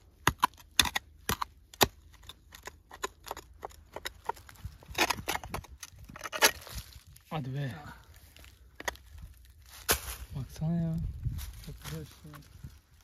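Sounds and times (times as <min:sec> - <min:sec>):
hoe chopping into soil: 0:09.8 - 0:10.3.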